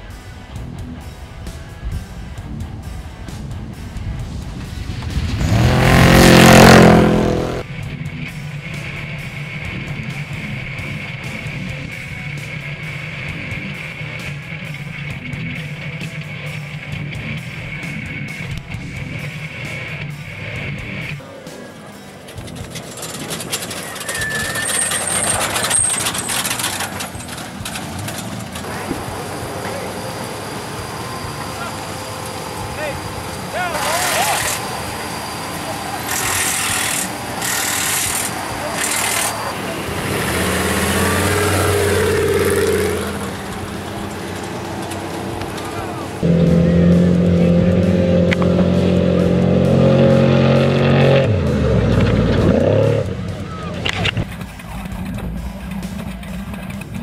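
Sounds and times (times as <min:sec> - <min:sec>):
race truck passing at speed: 0:04.0 - 0:07.9, 0:22.2 - 0:57.0.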